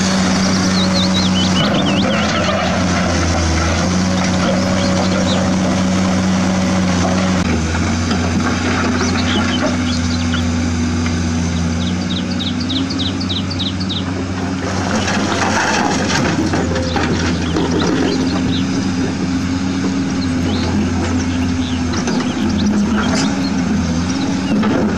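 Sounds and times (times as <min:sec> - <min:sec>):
bird chirping: 0:00.2 - 0:02.4, 0:09.0 - 0:10.6, 0:11.5 - 0:14.1, 0:17.4 - 0:18.9, 0:20.0 - 0:24.7.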